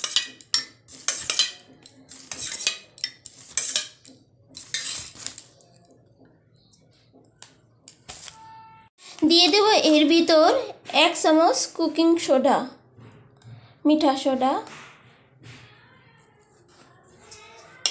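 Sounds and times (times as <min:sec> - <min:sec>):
spoon clinking against metal bowl: 0:00.0 - 0:05.5, 0:17.3 - 0:17.9.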